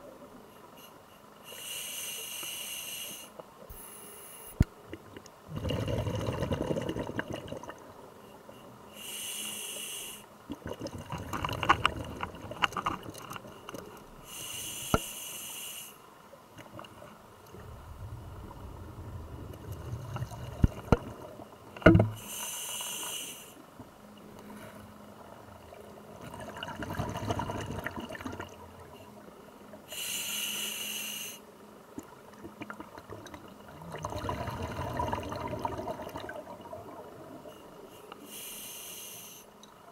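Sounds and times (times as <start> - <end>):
exhaled bubbles rumbling: 5.5 - 8.0, 10.5 - 13.4, 16.6 - 22.2, 25.6 - 28.9, 32.3 - 37.5
regulator breathing underwater: 14.2 - 16.0, 29.9 - 31.4, 38.0 - 39.6.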